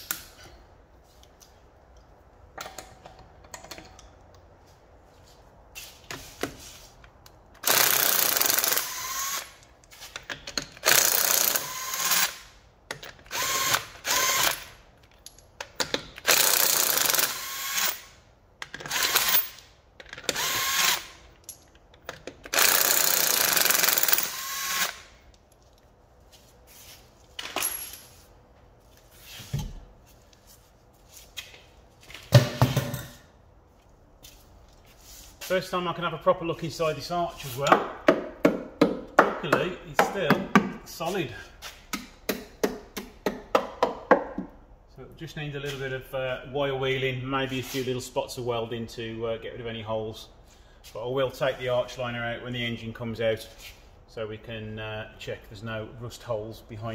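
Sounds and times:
impact wrench hammering: 0:37.7 - 0:40.8.

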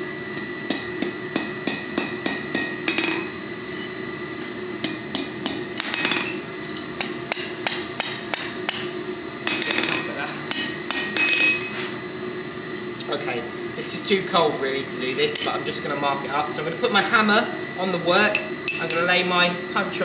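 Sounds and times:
steady hum: 0:00.0 - 0:20.0
hammer striking steel on anvil: 0:00.4 - 0:03.3, 0:04.8 - 0:11.7.

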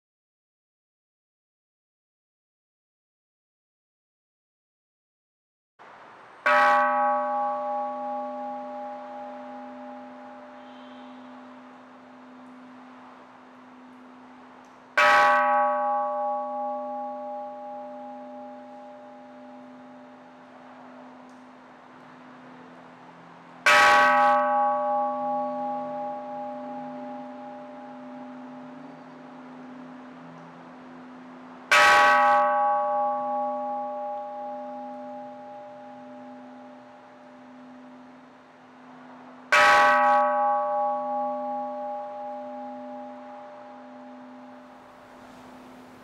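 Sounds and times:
temple bell ringing: 0:06.4 - 0:46.0
low bell hum: 0:23.6 - 0:46.0.

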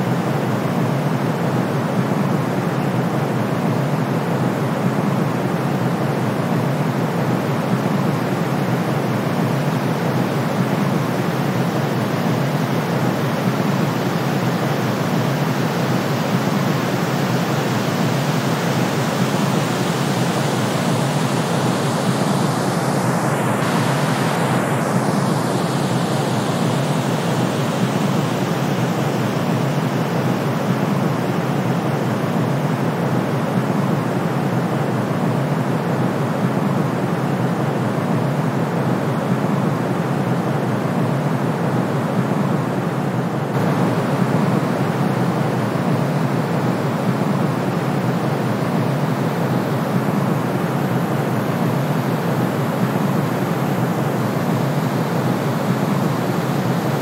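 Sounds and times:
brown and white noise: 0:00.0 - 0:57.0.

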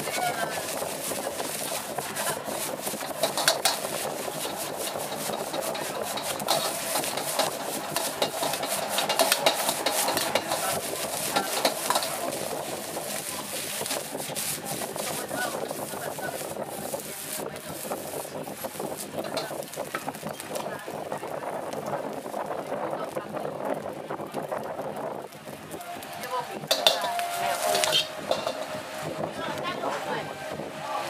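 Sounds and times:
rice sizzling in hot oil: 0:00.0 - 0:30.7
ladle scraping and clanking on wok: 0:00.1 - 0:20.7, 0:26.6 - 0:29.3.

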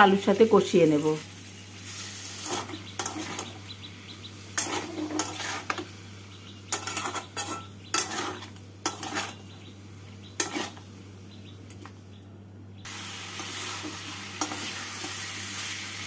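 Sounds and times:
frying sizzle: 0:00.0 - 0:12.0, 0:12.9 - 0:16.0
metal spatula scraping pan: 0:02.2 - 0:03.6, 0:04.5 - 0:05.9, 0:06.7 - 0:09.5, 0:10.4 - 0:10.8.

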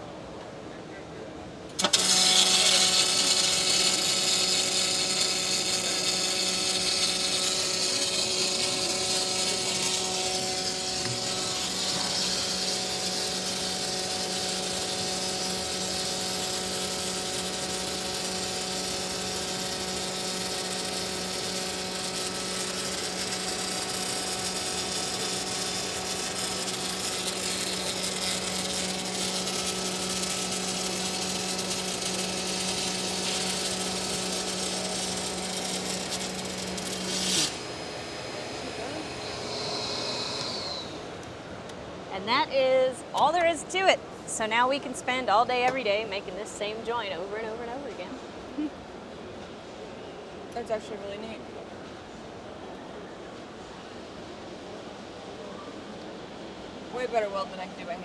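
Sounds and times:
welding arc crackling sizzle: 0:01.7 - 0:41.4.

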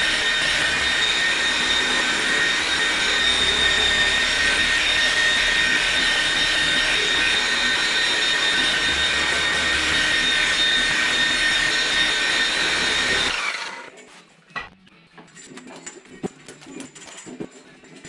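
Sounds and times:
electric polisher whine: 0:00.0 - 0:13.9.

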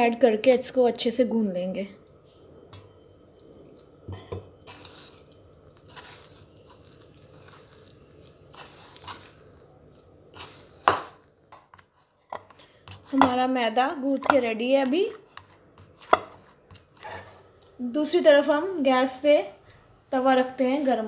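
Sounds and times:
dough squishing: 0:04.6 - 0:17.3.

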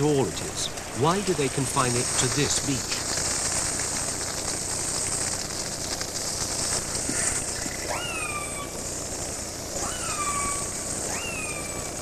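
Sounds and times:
underwater ambient hiss: 0:00.0 - 0:12.0.

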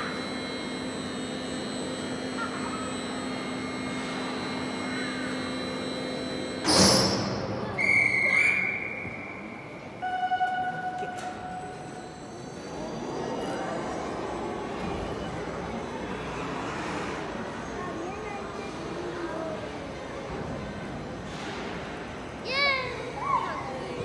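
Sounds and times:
crane mechanical hum: 0:00.0 - 0:24.0
high held tone: 0:07.6 - 0:12.8.

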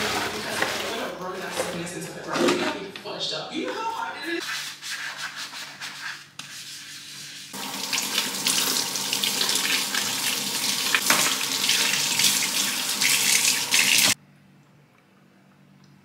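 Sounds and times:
running water rushing: 0:07.6 - 0:14.2.

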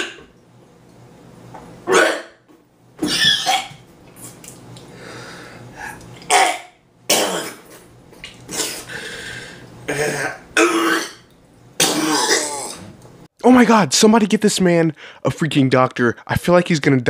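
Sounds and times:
man coughing and spluttering: 0:01.9 - 0:02.4, 0:03.0 - 0:04.4, 0:06.2 - 0:08.9, 0:09.8 - 0:12.9.

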